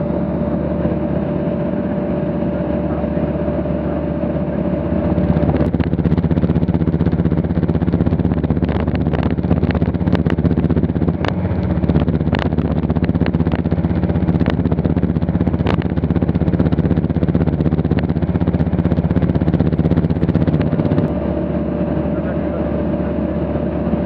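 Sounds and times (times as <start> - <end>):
light aircraft engine droning: 0.0 - 24.0.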